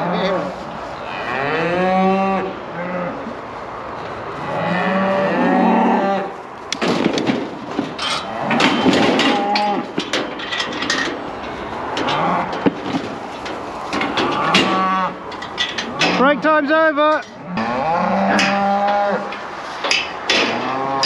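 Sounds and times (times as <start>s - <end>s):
steel crush knocking and rattling: 6.7s - 16.4s.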